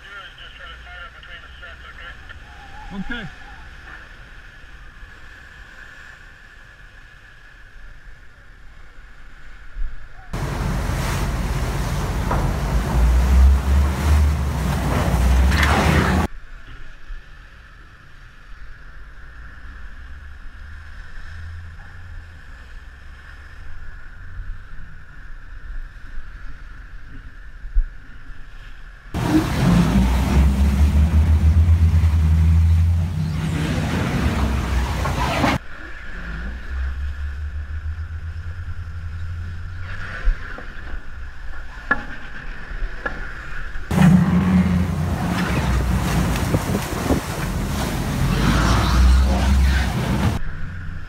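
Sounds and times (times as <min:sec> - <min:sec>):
rush of wind and water: 0:00.0 - 0:51.0
wash of sea and wind: 0:00.0 - 0:51.0
diesel engine rumble: 0:10.4 - 0:16.3, 0:29.2 - 0:40.7, 0:43.9 - 0:51.0.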